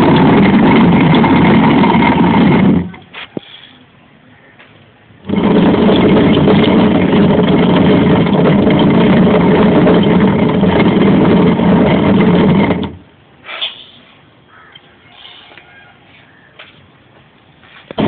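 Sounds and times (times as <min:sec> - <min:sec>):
stone quern grinding grain: 0:05.3 - 0:13.0.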